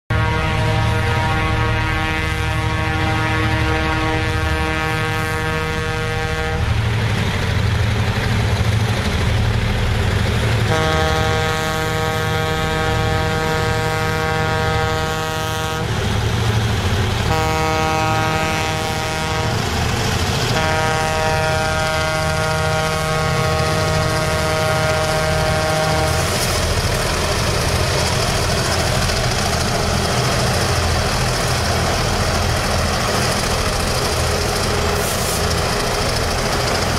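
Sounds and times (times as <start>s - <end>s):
locomotive air horn blasts: 0.1s - 6.8s, 10.6s - 16.0s, 17.2s - 19.8s, 20.4s - 26.6s
diesel engine rumble: 0.1s - 36.9s
train running noise: 0.1s - 36.9s.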